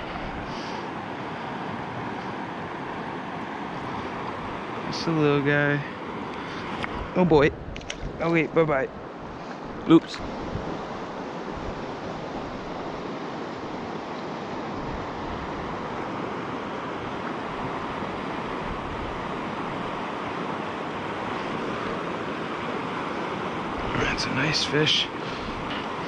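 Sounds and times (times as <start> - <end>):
stream rushing over rocks: 9.2 - 26.0.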